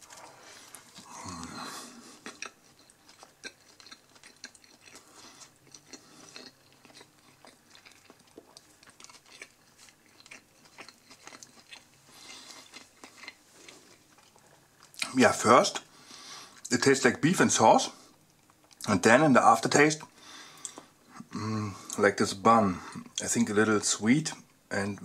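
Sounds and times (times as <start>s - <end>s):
person chewing with mouth smacks: 0.0s - 15.1s.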